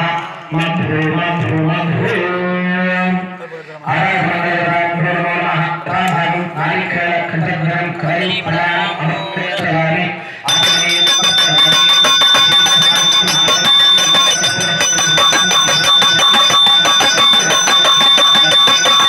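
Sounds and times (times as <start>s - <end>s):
temple bells ringing rapidly: 6.4s - 19.0s
high ringing tone: 8.3s - 9.8s, 10.5s - 19.0s.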